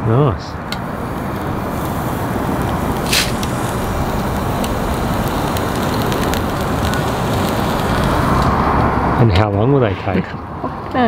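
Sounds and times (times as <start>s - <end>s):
charcoal fire crackling: 0.6s - 9.2s
fire rushing with low rumble: 0.8s - 9.4s.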